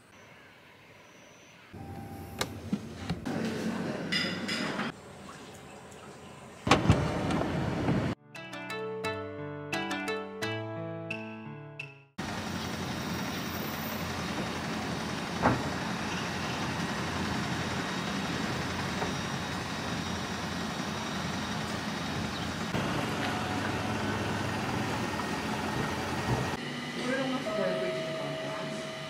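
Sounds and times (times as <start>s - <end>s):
road traffic rumbling: 12.2s - 27.4s.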